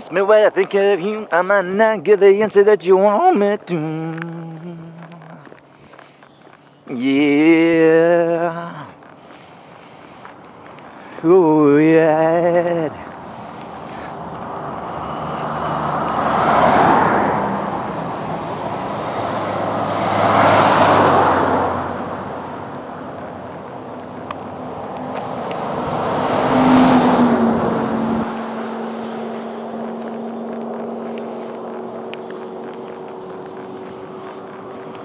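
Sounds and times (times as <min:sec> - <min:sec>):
low engine hum: 0:00.0 - 0:35.0
vehicles passing on a highway: 0:00.0 - 0:35.0.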